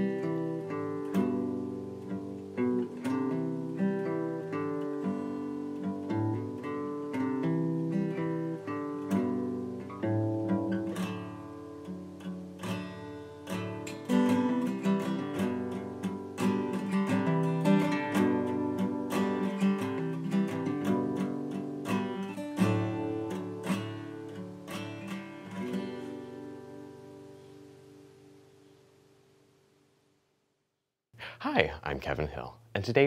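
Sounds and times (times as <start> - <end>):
acoustic guitar playing: 0.0 - 29.9.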